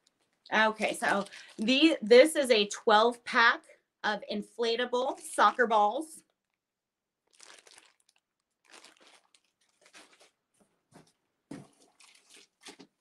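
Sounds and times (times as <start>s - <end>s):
plastic packaging crinkling: 0.0s - 2.0s, 5.1s - 6.6s, 7.2s - 10.4s, 11.7s - 13.0s.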